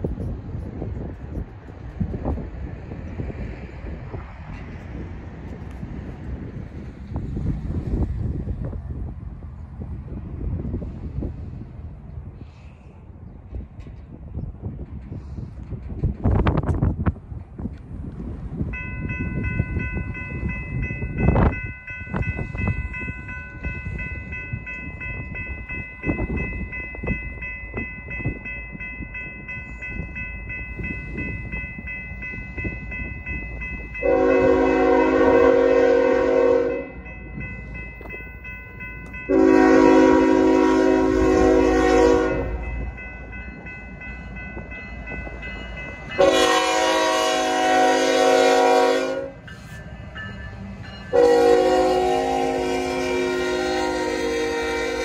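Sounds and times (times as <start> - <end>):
train rumble: 0.0 - 55.0
crossing warning bell ringing: 18.6 - 55.0
locomotive horn blasts: 34.0 - 37.0, 39.3 - 42.6, 46.2 - 49.4, 51.1 - 55.0.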